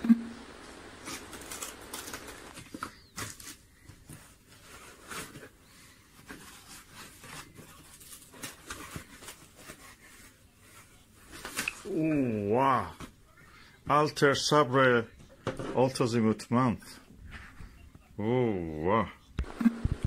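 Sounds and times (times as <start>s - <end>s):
foam and cardboard crinkling: 0.8s - 13.1s.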